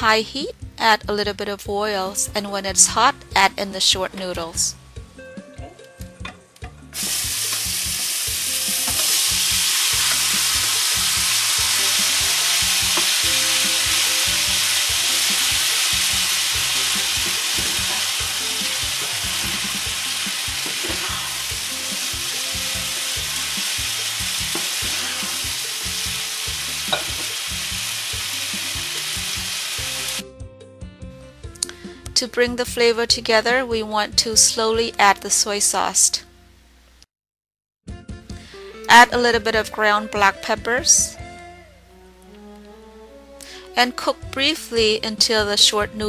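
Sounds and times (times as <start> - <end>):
noodles sizzling in hot oil: 7.0 - 30.2.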